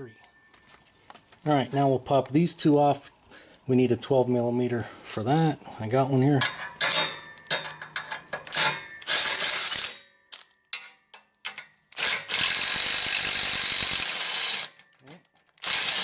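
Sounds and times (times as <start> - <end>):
impact wrench running: 8.6 - 10.0, 11.9 - 14.8, 15.6 - 16.0.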